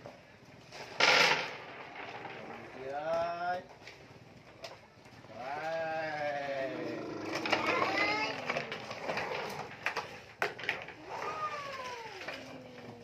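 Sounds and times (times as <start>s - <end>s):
plastic toys clacking: 6.8s - 13.0s
small child crying: 7.2s - 8.6s, 11.1s - 13.0s.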